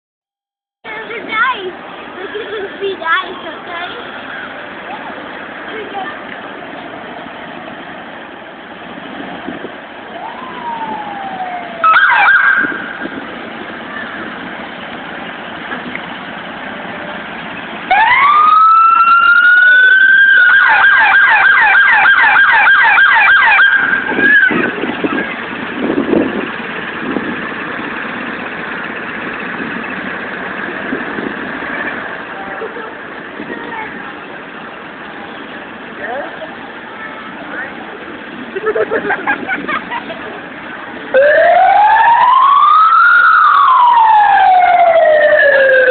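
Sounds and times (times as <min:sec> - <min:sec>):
street and crowd noise: 0:00.8 - 0:45.9
police siren wailing and yelping: 0:10.1 - 0:13.1, 0:17.9 - 0:24.8, 0:41.1 - 0:45.9.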